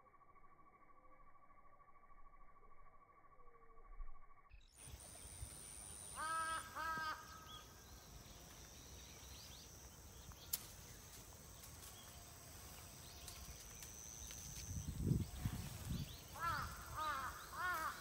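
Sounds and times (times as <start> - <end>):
bird harsh calls: 6.0 - 7.9, 15.4 - 18.0.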